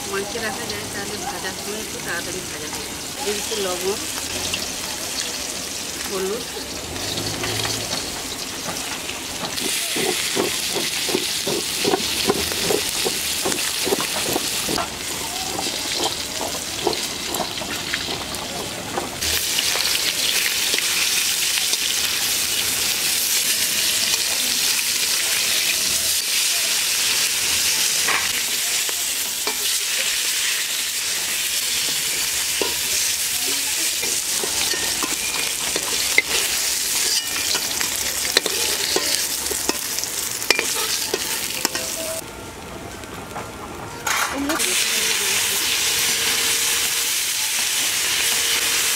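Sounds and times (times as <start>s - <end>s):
fish frying in hot oil: 0.0s - 42.2s, 44.1s - 48.9s
spatula scraping and tapping: 9.4s - 14.9s, 33.5s - 37.8s.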